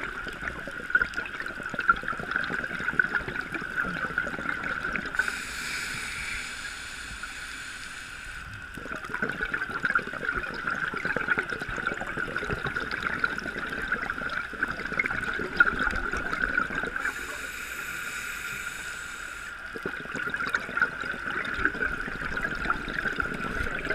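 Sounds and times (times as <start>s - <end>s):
steady high hum: 5.1s - 9.0s, 16.6s - 19.8s
regulator inhalation hiss: 5.2s - 8.6s, 17.0s - 19.7s.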